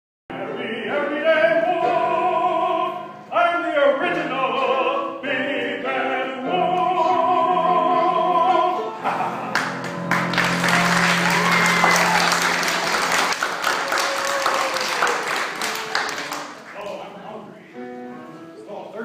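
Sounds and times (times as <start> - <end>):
operatic singing: 0.3 - 16.6
people clapping: 9.5 - 17.1.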